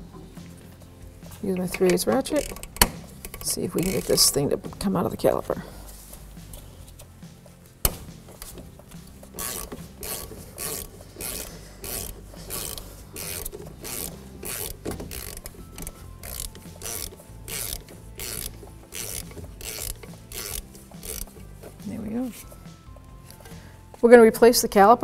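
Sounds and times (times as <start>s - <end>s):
ratchet clicking: 1.5s - 4.4s, 7.8s - 21.8s.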